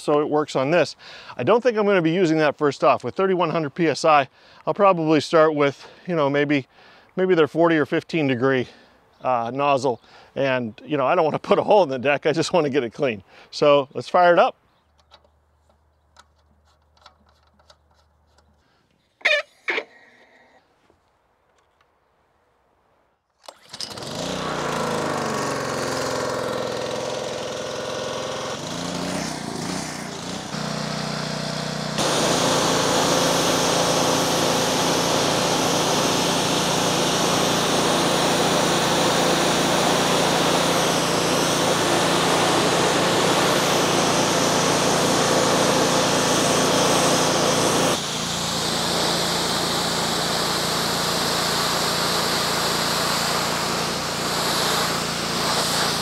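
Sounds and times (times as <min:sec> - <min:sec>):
engine running: 0:23.4 - 0:56.0
rushing hiss of water spray: 0:40.7 - 0:56.0.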